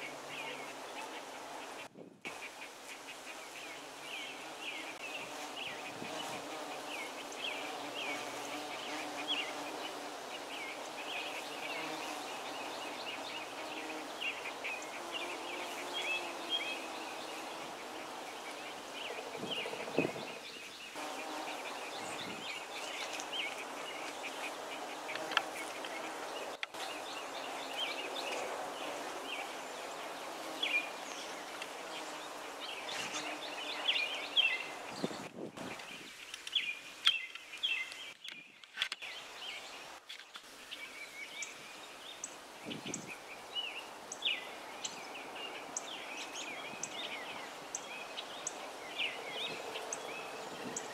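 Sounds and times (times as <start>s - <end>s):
bees buzzing: 0.0s - 35.8s
small birds chirping: 0.0s - 50.9s.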